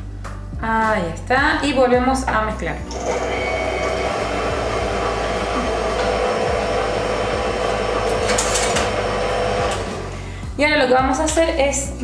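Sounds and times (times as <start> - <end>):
stand mixer motor hum and whine: 2.9 - 10.1.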